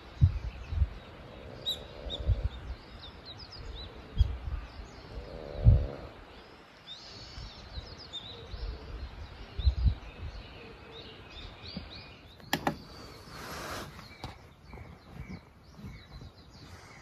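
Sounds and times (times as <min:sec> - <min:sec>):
small birds chirping: 0:00.0 - 0:17.0
sharp clicks: 0:12.4 - 0:12.9.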